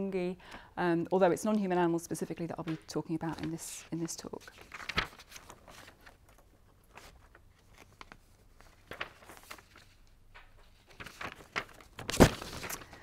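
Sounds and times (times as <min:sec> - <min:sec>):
faint clicks and rustles: 0:02.6 - 0:13.0.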